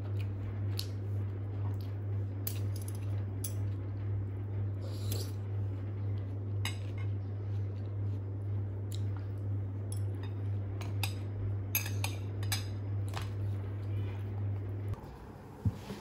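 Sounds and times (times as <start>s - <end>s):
steady low hum: 0.0s - 16.0s
cutlery clinking on ceramic bowls: 9.9s - 12.8s.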